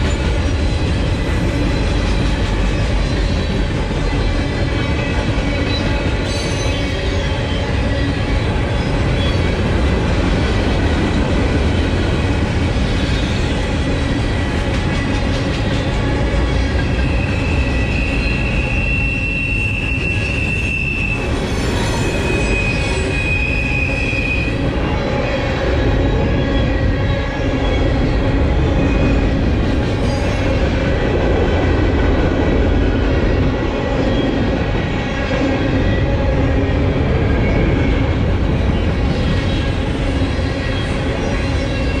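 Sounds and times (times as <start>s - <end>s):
train wheels rumbling on rails: 0.0s - 42.0s
high wheel squeal: 16.5s - 28.1s.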